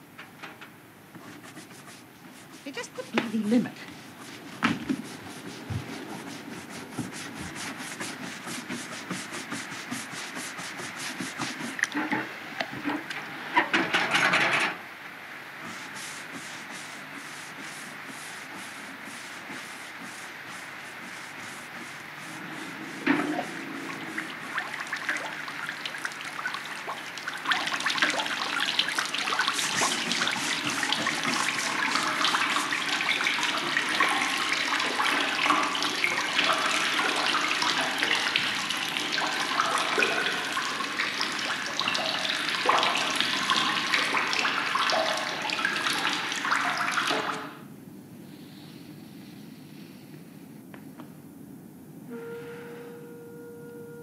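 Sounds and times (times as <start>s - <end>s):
water splashing over head: 21.0s - 47.5s.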